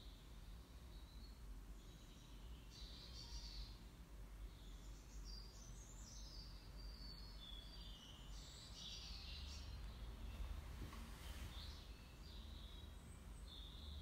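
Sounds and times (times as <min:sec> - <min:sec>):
faint bird chirps: 0:00.0 - 0:14.0.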